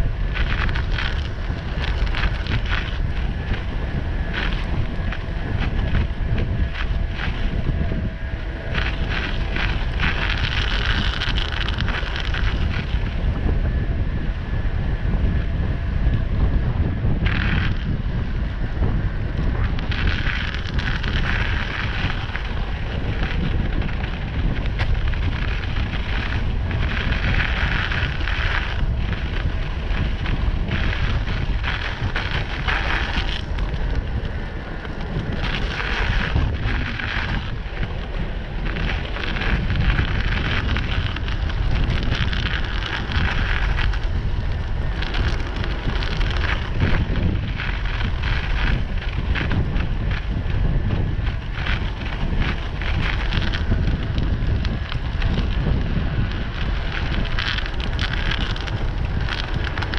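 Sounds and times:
wind buffeting microphone: 0:00.0 - 0:59.9
tyres hissing on wet path: 0:19.5 - 0:59.9.

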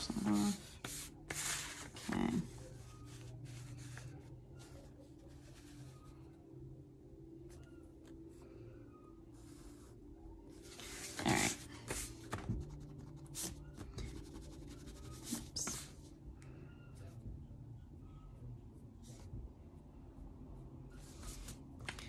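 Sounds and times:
pencil scratching on paper: 0:00.0 - 0:05.8, 0:10.7 - 0:15.9
paper sliding and rustling: 0:00.2 - 0:02.2.

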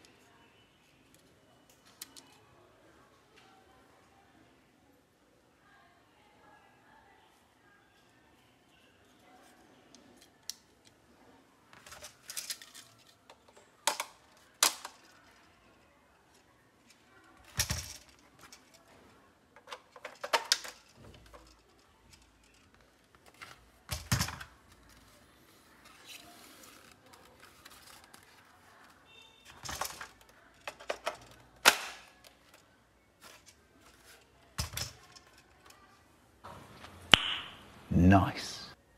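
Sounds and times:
plastic toy parts clicking: 0:01.1 - 0:02.4, 0:09.9 - 0:11.0, 0:11.8 - 0:19.0, 0:19.6 - 0:25.2, 0:25.8 - 0:35.9.

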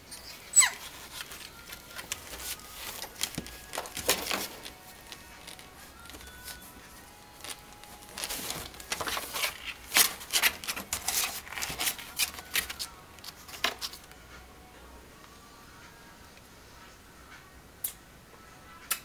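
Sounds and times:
scratching against cardboard: 0:00.6 - 0:14.1.

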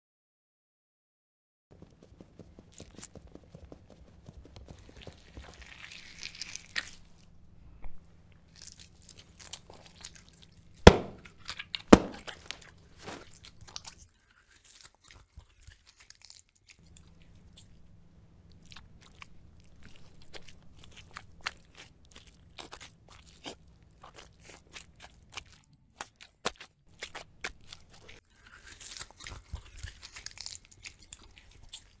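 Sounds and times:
slime splats: 0:10.9 - 0:11.2, 0:12.0 - 0:12.3.

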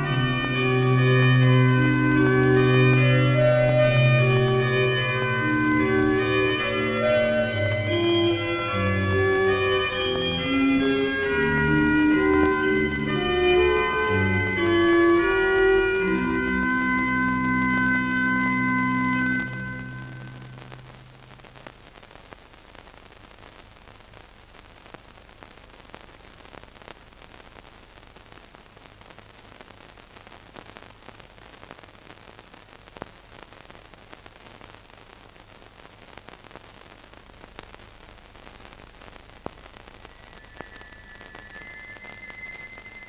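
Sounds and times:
held music tone: 0:00.0 - 0:20.8, 0:40.1 - 0:43.0
faint steady hum: 0:00.0 - 0:43.0
film soundtrack hiss and crackle: 0:00.0 - 0:43.0.

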